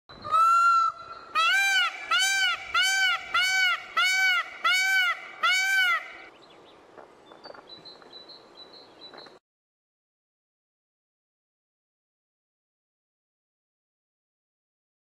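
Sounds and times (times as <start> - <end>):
peacock honking calls: 0.2 - 6.3.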